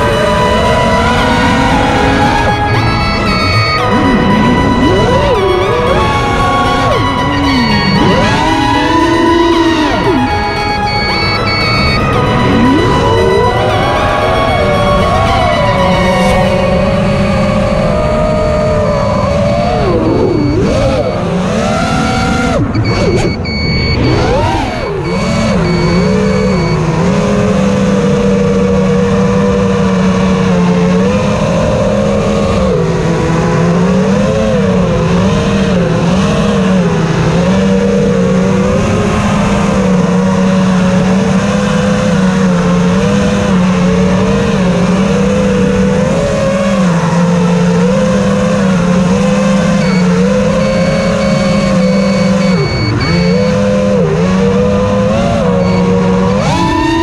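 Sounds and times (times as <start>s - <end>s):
quadcopter motors whining: 0.0s - 57.0s.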